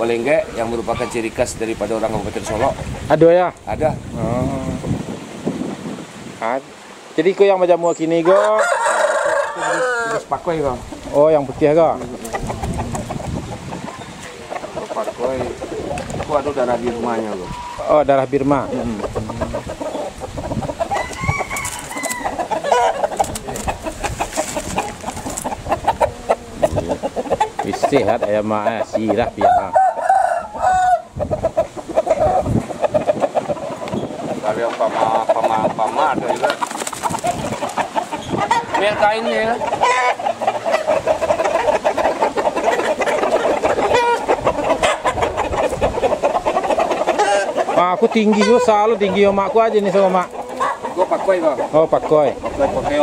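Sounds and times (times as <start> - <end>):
chickens clucking and calling: 0.0 - 53.0
loud high rooster call: 8.2 - 10.3, 20.9 - 23.0, 29.4 - 31.1.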